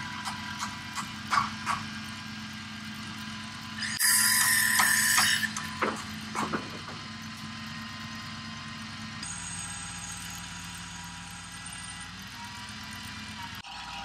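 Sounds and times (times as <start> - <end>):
harsh rasping mechanical noise: 0.0 - 14.0
truck engine humming: 0.0 - 14.0.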